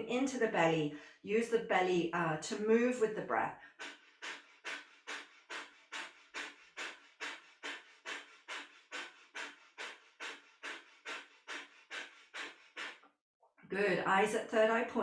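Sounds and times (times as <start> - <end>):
rapid panting breaths through nose: 0.9 - 1.2, 3.5 - 13.2.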